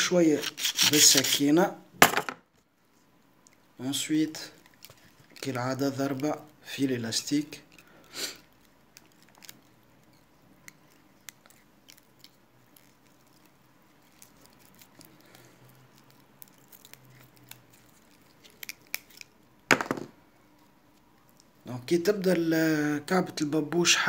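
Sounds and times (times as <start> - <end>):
small clicks and crackles of handling: 4.4 - 6.6, 7.5 - 19.4, 20.5 - 21.6.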